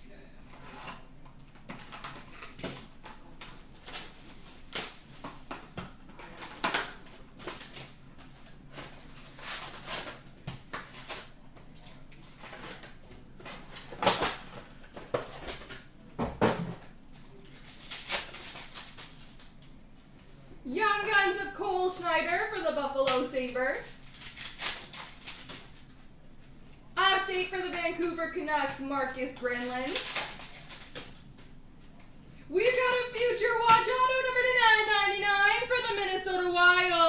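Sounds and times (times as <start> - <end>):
packaging rustling and crinkling: 0.6 - 15.9, 17.2 - 19.6, 23.9 - 26.1, 29.4 - 31.6
foil card packs handled: 17.2 - 19.7, 23.8 - 26.1, 28.9 - 31.6.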